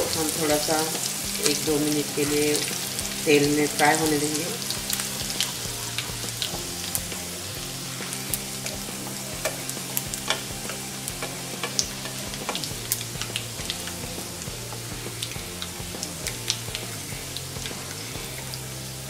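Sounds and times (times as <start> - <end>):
seeds sizzling in hot oil: 0.0 - 19.0
wooden spatula stirring in pan: 4.0 - 18.7
sharp pops and crackles: 4.6 - 18.8.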